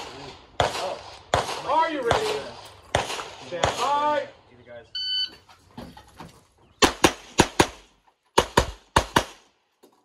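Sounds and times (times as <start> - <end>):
pistol shots: 0.0 - 4.1, 6.8 - 9.5.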